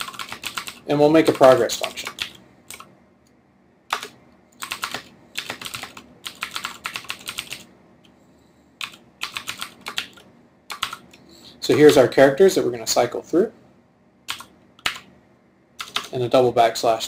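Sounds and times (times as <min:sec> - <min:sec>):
computer keyboard typing: 0:00.0 - 0:02.9, 0:03.9 - 0:07.7, 0:08.8 - 0:11.2, 0:14.3 - 0:15.1, 0:15.8 - 0:16.2.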